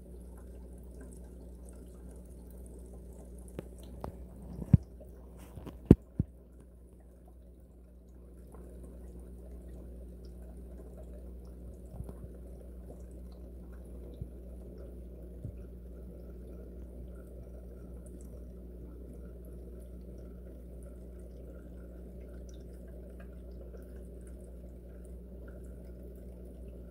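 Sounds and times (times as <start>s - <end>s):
water dripping and trickling: 0.0s - 26.9s.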